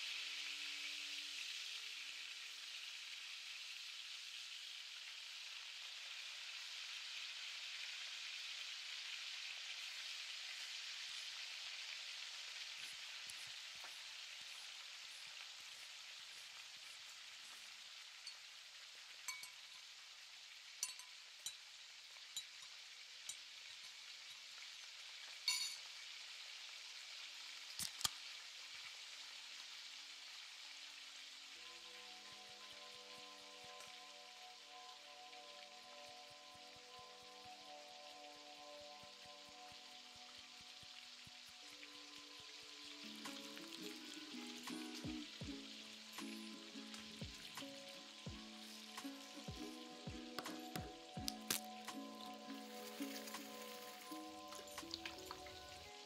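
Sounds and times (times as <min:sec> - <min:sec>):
food sizzling in a pan: 0:00.0 - 0:56.0
sharp clicks and clinks: 0:25.5 - 0:25.8.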